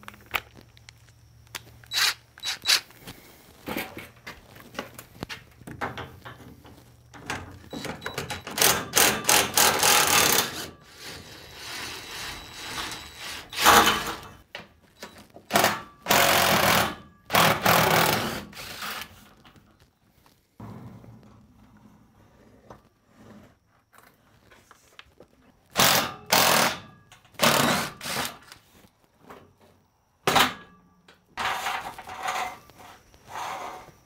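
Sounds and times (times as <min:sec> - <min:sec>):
impact driver hammering bolts: 0:07.7 - 0:10.7, 0:15.5 - 0:18.5, 0:25.8 - 0:28.4.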